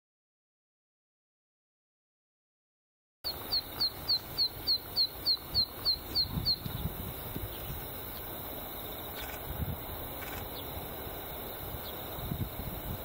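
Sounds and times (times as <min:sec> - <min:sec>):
bird song of sharp high notes: 0:03.2 - 0:08.4.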